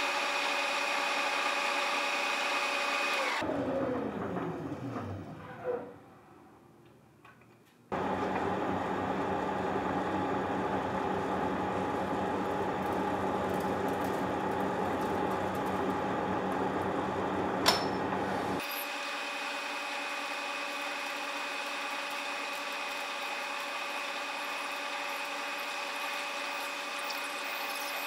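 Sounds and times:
power tool motor running: 0:00.0 - 0:03.5.

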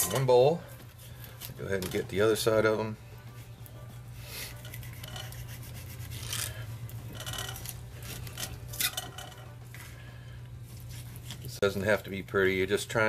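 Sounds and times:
knife scraping through fish: 0:04.4 - 0:07.7, 0:10.8 - 0:11.5.

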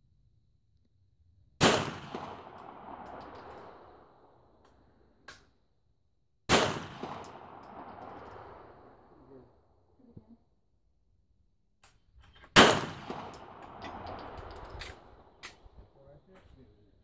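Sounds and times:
pistol shots with echo: 0:01.6 - 0:04.1, 0:06.5 - 0:09.2, 0:12.6 - 0:15.7.

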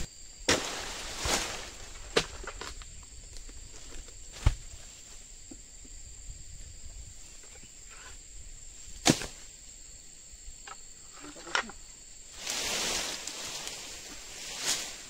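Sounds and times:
insects droning: 0:00.0 - 0:15.0
rustle of leaves: 0:00.5 - 0:05.3, 0:12.3 - 0:15.0.

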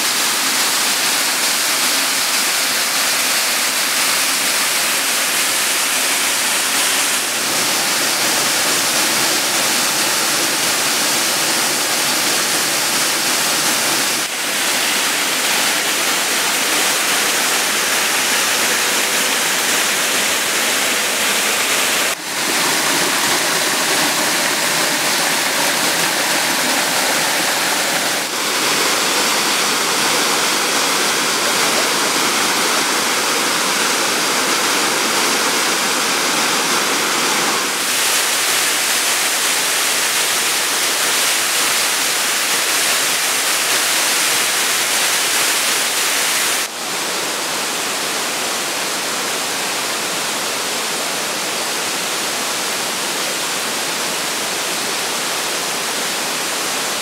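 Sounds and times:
waterfall rushing: 0:00.0 - 0:57.0.

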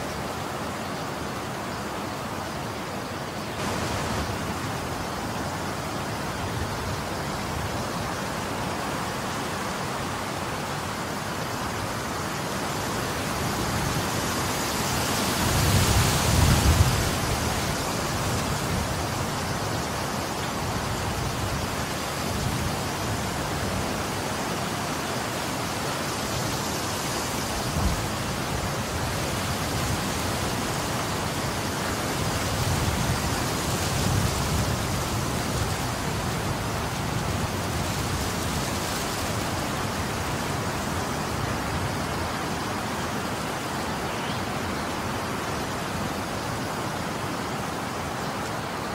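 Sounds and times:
wind buffeting microphone: 0:13.1 - 0:24.3.

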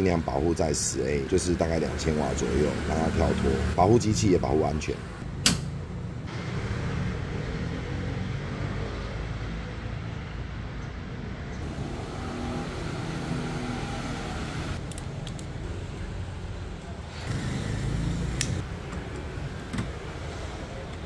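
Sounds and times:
circuit breaker click: 0:05.4 - 0:05.7.

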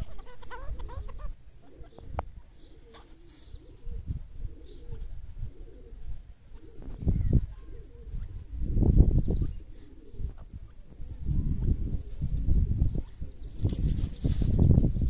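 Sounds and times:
soft low bird cooing: 0:00.0 - 0:15.0.

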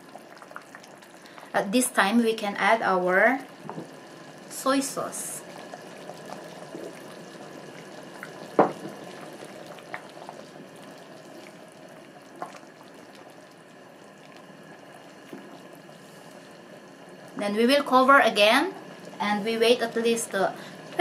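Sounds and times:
porridge bubbling: 0:00.0 - 0:21.0.

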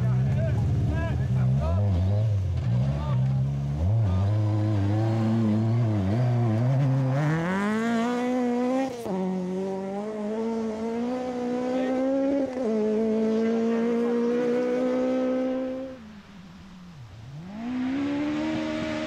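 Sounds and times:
car engine accelerating hard: 0:00.0 - 0:19.0.

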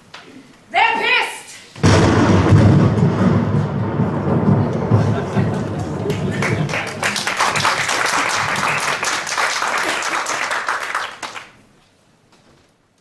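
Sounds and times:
audience applauding: 0:04.7 - 0:11.7.

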